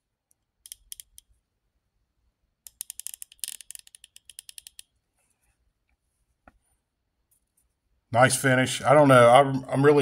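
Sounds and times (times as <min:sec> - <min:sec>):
ratchet clicking: 0:00.6 - 0:01.3, 0:02.6 - 0:04.9.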